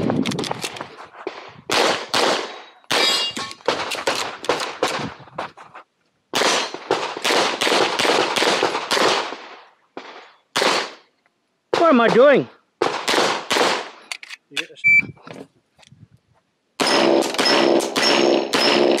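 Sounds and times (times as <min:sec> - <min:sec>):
pistol shots: 0:01.7 - 0:05.0, 0:06.4 - 0:11.0, 0:12.8 - 0:14.0, 0:16.8 - 0:19.0.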